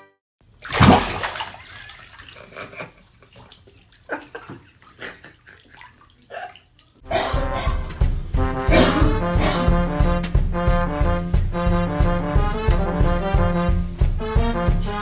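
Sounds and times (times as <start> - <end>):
water splashing in bathtub: 0.4 - 7.0.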